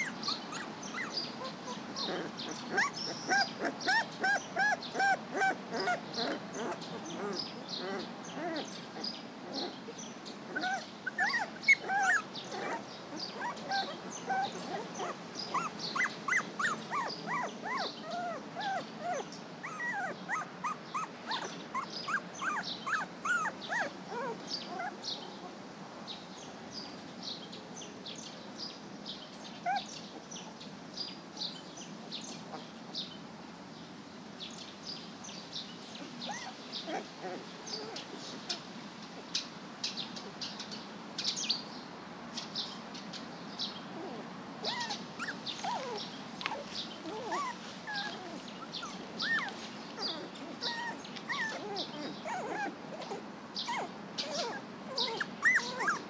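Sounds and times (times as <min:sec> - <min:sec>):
puppies whimpering and squeaking: 0:00.0 - 0:25.5, 0:29.6 - 0:30.3, 0:36.0 - 0:38.6, 0:44.0 - 0:56.0
songbirds chirping: 0:00.0 - 0:56.0.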